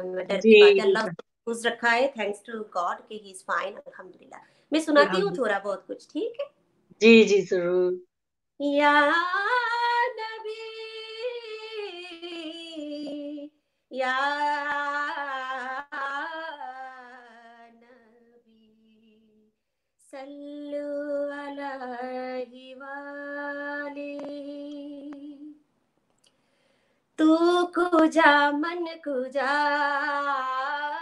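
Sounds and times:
woman singing unaccompanied: 0:05.0 - 0:05.4, 0:08.6 - 0:19.4, 0:20.1 - 0:25.6, 0:27.2 - 0:31.0.

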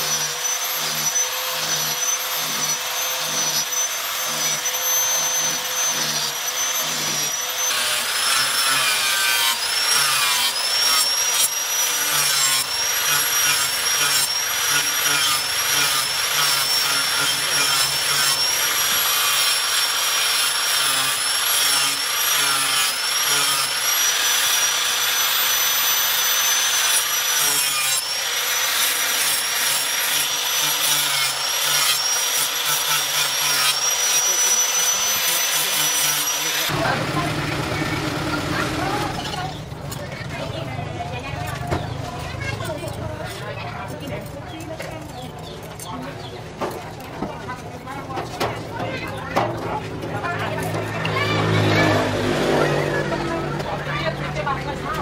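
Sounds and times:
angle grinder grinding steel: 0:00.0 - 0:40.6.

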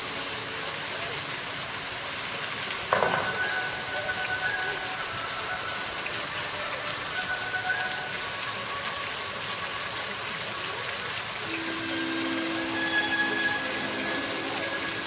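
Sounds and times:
fountain water splashing: 0:00.0 - 0:15.0
faint music: 0:02.6 - 0:15.0
held low note: 0:11.4 - 0:15.0.

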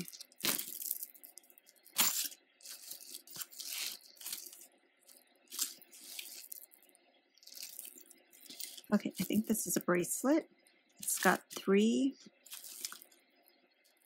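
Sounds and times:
chain bracelet clinking: 0:00.0 - 0:04.6.

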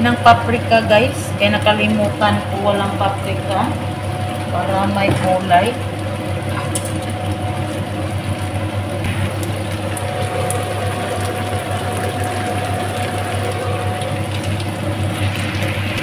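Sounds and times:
food crackling in frying pan: 0:00.0 - 0:16.0
low mechanical hum with whine: 0:00.0 - 0:16.0.

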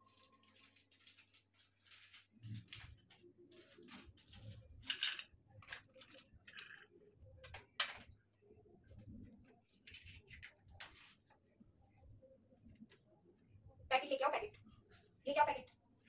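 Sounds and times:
plastic packet crinkling: 0:00.0 - 0:04.9
small items rustling and clicking: 0:00.0 - 0:08.2, 0:08.9 - 0:11.4.

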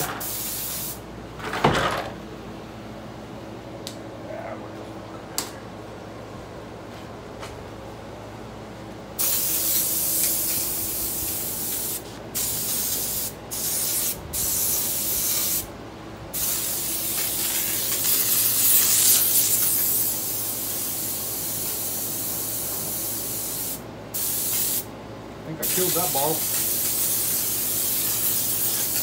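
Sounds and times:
airbrush spraying hiss: 0:00.2 - 0:01.0, 0:09.2 - 0:15.7, 0:16.3 - 0:24.9, 0:25.6 - 0:29.0.

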